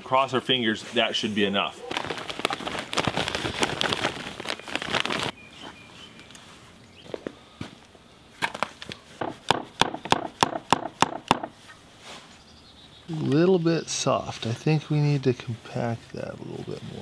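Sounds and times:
hammer knocking packing sand: 9.2s - 11.6s.

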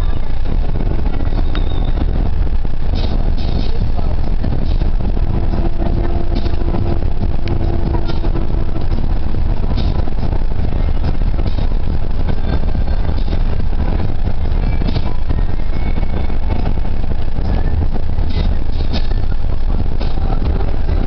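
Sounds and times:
bus engine and road drone: 0.0s - 21.0s.

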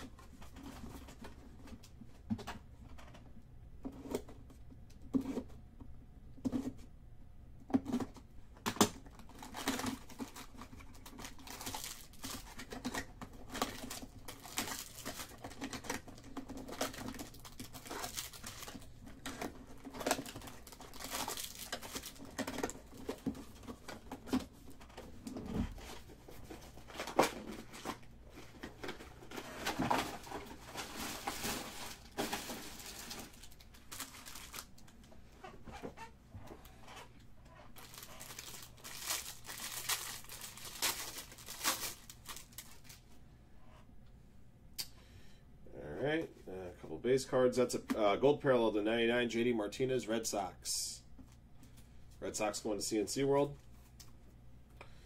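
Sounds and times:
card wrappers crinkling and tearing: 8.8s - 35.1s, 37.8s - 43.0s.

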